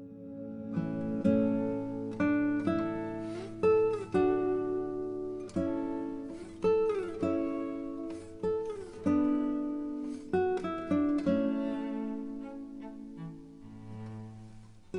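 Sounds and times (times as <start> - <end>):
plucked acoustic guitar: 0.0 - 14.9.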